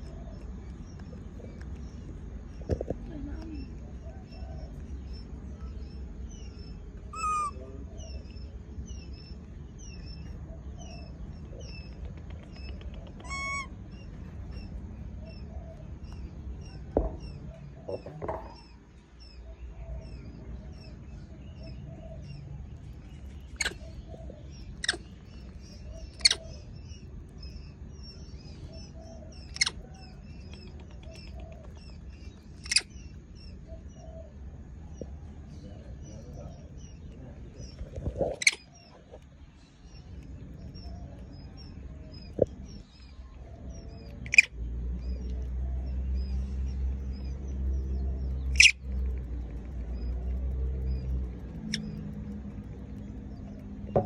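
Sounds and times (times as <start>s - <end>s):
birds chirping: 0.0s - 54.0s
sharp clicks: 11.3s - 13.7s, 29.4s - 33.6s, 43.7s - 54.0s.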